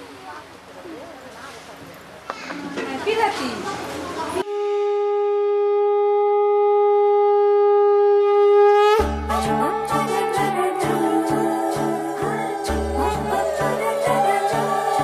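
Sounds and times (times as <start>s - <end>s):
conch shell blown: 4.4s - 15.0s
music with steady beat: 9.0s - 15.0s.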